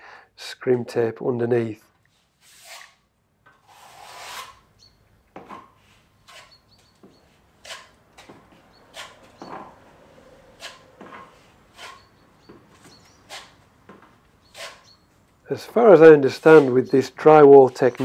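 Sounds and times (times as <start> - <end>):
steel trowel scraping wet plaster: 2.4 - 3.0, 3.6 - 4.7, 6.2 - 6.7, 7.6 - 8.0, 10.6 - 12.2, 13.2 - 13.6, 14.5 - 14.9, 15.6 - 18.0.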